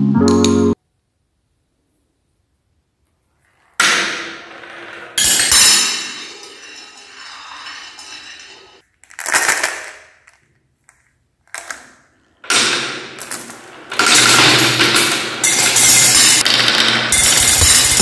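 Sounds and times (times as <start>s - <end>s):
glass marbles clinking: 5.2s - 8.8s, 14.0s - 18.0s.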